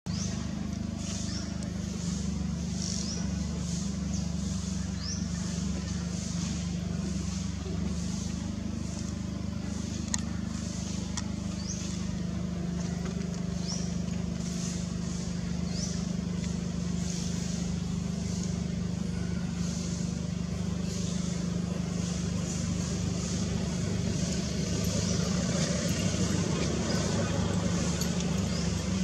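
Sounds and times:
low motor hum: 0.1 - 29.0.

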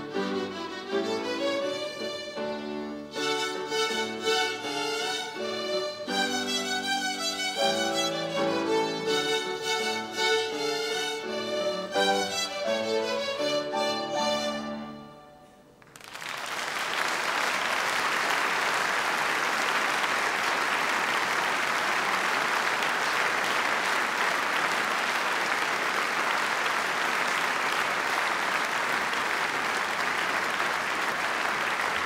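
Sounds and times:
audience applauding: 15.8 - 32.0.

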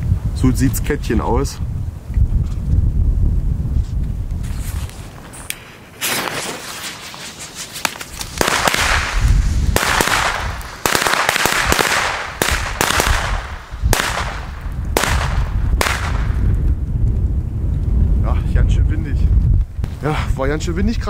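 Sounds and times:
wind rumble on microphone: 0.0 - 21.0
firecrackers banging: 5.3 - 16.8.

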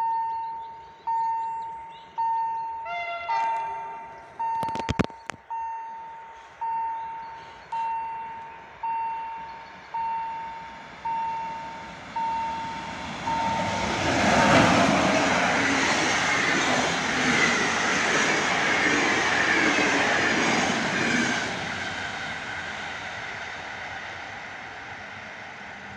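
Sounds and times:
level crossing warning bell: 0.0 - 14.0
train passing at speed: 6.1 - 25.9.

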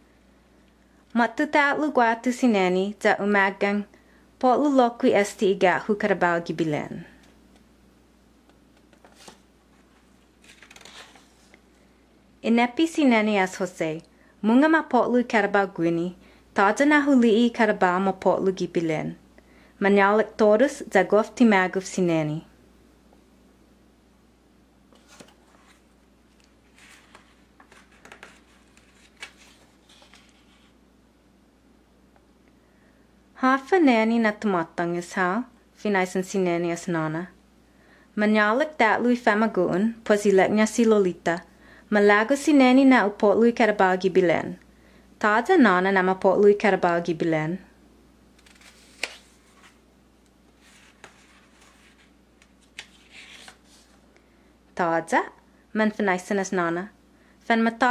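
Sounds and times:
book pages rustling and turning: 8.7 - 11.7, 24.9 - 30.8, 48.4 - 49.8, 50.5 - 54.0.

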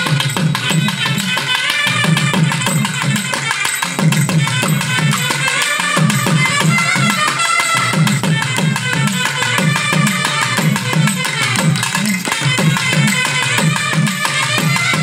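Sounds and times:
barrel drums beaten fast: 0.0 - 15.0
trumpets playing a melody: 4.6 - 15.0.

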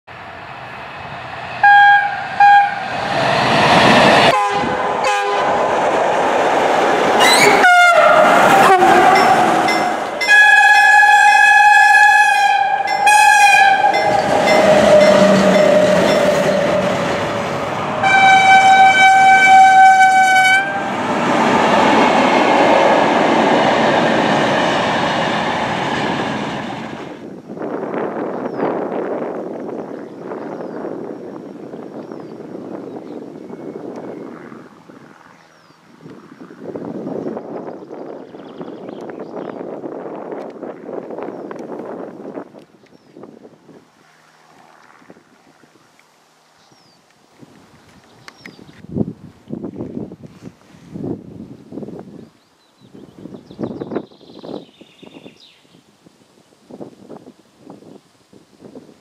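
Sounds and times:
passing train rumble and clatter: 0.1 - 46.1
locomotive horn blasts: 1.6 - 3.0, 4.3 - 5.6, 7.2 - 21.0.

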